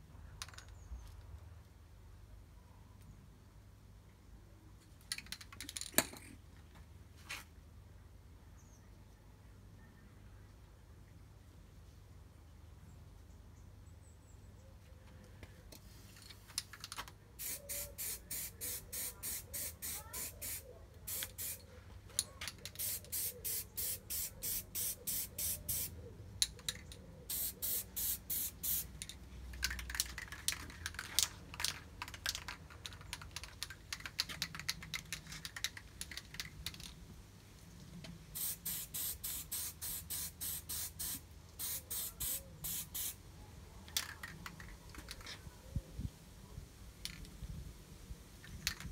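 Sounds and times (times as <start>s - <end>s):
aerosol can spraying in short bursts: 17.4s - 21.6s, 22.7s - 25.9s, 27.3s - 28.9s, 38.4s - 43.2s.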